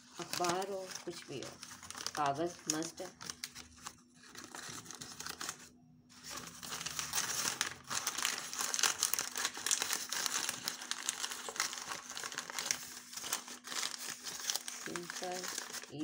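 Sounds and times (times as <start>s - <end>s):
paper crinkling and rustling: 0.0s - 16.0s.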